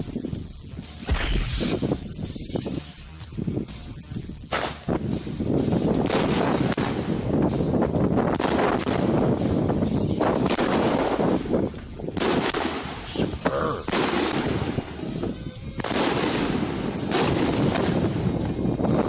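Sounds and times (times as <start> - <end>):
firework shells launching: 10.3 - 14.9, 15.8 - 18.2.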